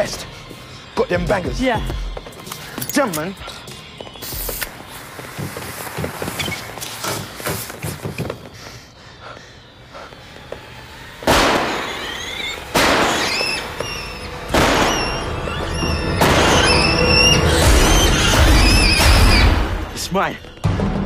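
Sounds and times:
shrill wavering whistling: 8.6s - 20.6s
fireworks blasts: 11.2s - 13.9s.

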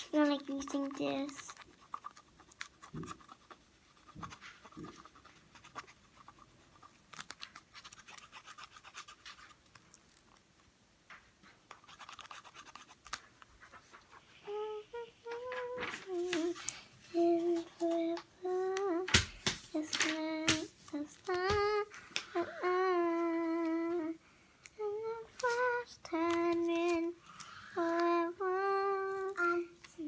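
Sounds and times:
girl singing: 0.0s - 1.6s, 14.3s - 30.0s.

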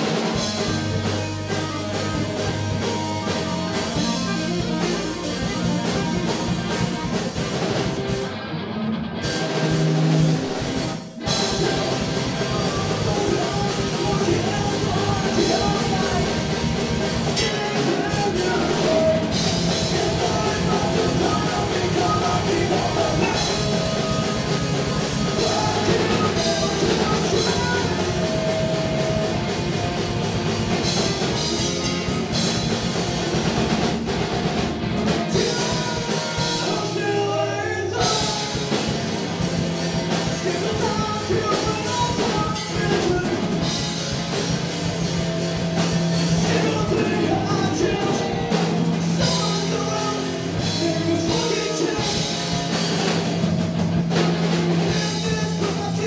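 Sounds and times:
bass guitar: 0.0s - 56.0s
distorted electric guitars: 0.0s - 56.0s
drum kit: 0.0s - 56.0s
person singing: 11.0s - 29.5s, 35.2s - 38.9s, 40.1s - 43.8s, 46.2s - 52.6s, 54.9s - 56.0s.

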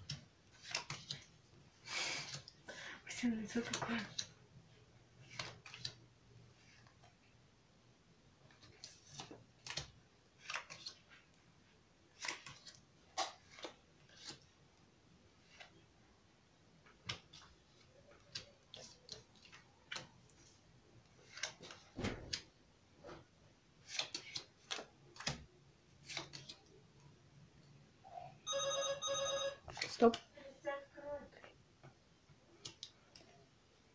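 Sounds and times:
playing cards slapping on a table: 0.1s - 1.2s, 5.3s - 6.0s, 8.9s - 11.0s, 12.2s - 14.4s, 17.0s - 17.5s, 23.8s - 26.6s.

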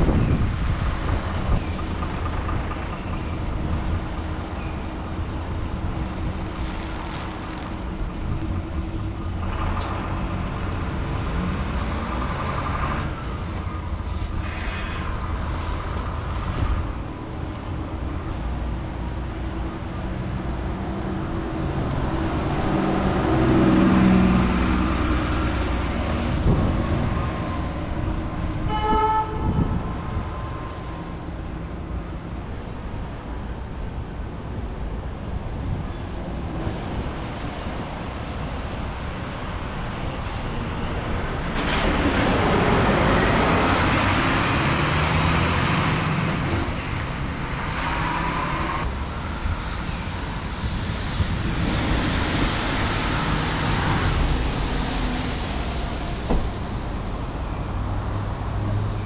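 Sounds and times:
buses driving on wet road: 0.0s - 59.0s
short horn toot: 28.6s - 29.7s.

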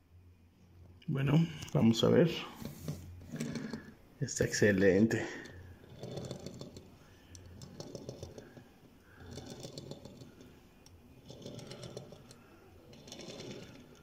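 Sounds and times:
toy car rolling on tabletop: 2.7s - 3.9s, 5.1s - 14.0s.

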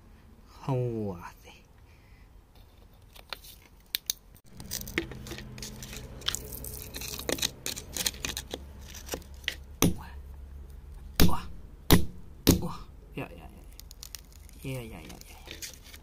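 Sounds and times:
low steady hum: 0.0s - 16.0s
metal blade scraping wet clay: 4.6s - 9.7s.

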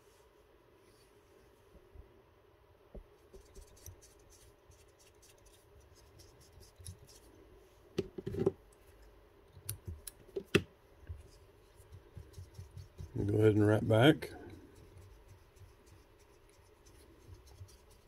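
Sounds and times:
thread scratching: 3.3s - 7.3s, 14.6s - 18.0s.

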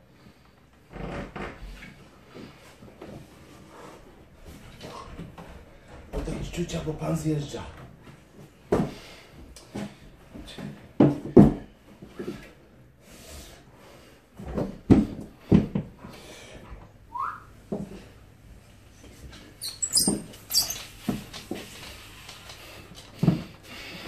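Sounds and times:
body thumping down stairs: 7.9s - 12.4s, 14.4s - 16.1s, 22.5s - 24.0s.

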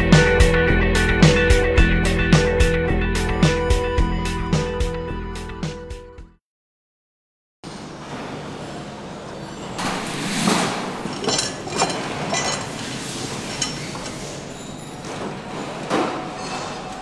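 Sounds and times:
workshop background noise: 7.7s - 17.0s
metal clinks and knocks: 11.0s - 15.1s.

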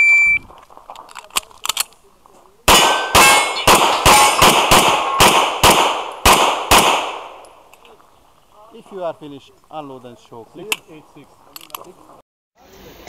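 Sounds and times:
steel targets clanging: 2.7s - 5.2s
handgun shots: 2.7s - 7.4s.

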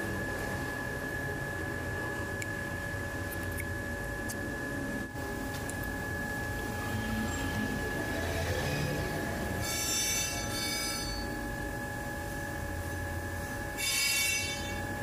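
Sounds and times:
metal lathe whining: 6.1s - 15.0s
cutting tool squealing: 7.0s - 11.3s, 13.8s - 14.8s.

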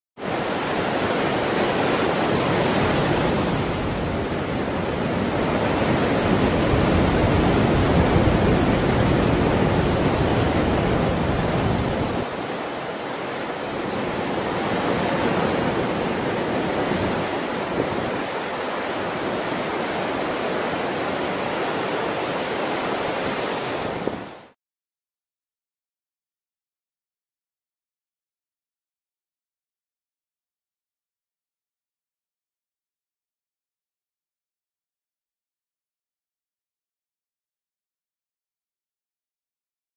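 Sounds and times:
waves breaking on shore: 0.2s - 24.6s.

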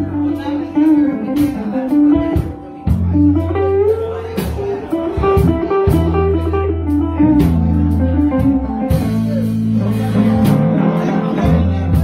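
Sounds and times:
electric bass low notes: 0.0s - 12.0s
electric guitar: 0.0s - 12.0s
electric keyboard: 0.0s - 12.0s.

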